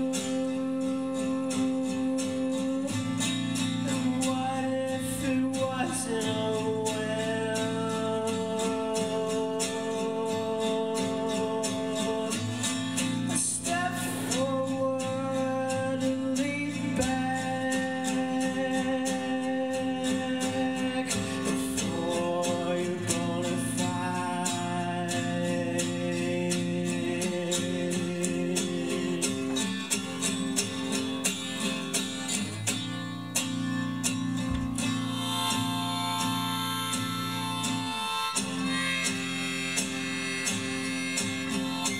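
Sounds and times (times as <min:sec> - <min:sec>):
man singing: 0:00.0 - 0:33.0
acoustic guitar strumming: 0:00.0 - 0:41.9.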